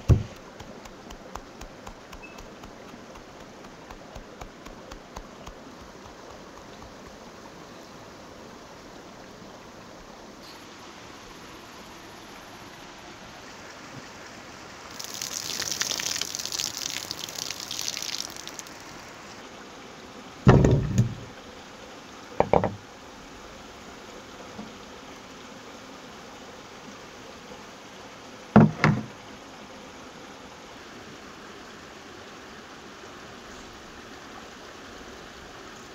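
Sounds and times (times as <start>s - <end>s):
heavy knocks on wooden bowl: 0.0s - 2.8s, 20.5s - 21.3s, 22.4s - 22.8s, 28.6s - 29.1s
faint background hiss: 0.0s - 35.9s
water pouring: 14.9s - 19.0s.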